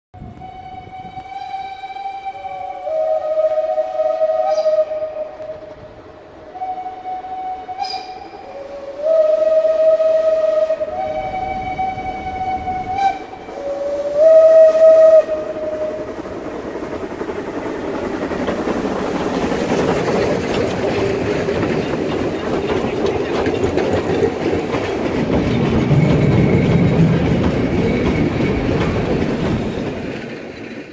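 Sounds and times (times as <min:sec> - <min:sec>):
steam whistle blasts: 0:00.2 - 0:05.8, 0:06.5 - 0:16.2
steam train passing: 0:00.2 - 0:30.9.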